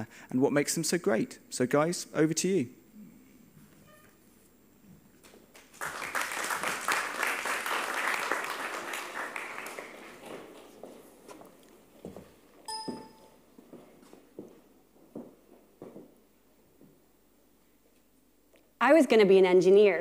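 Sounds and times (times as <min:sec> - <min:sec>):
audience applauding: 0:05.5 - 0:11.0
short ringing ping: 0:12.7 - 0:13.3.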